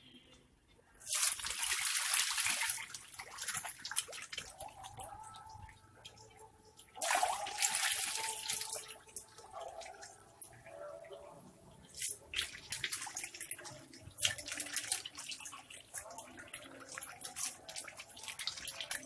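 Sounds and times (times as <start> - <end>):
fish thrashing and splashing: 1.0 - 10.7, 11.7 - 19.0
water sloshing: 1.1 - 19.0.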